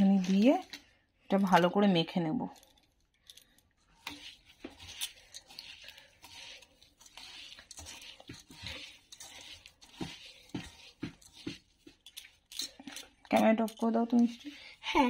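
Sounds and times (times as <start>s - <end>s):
wet rice crunching and rustling: 3.8s - 15.0s.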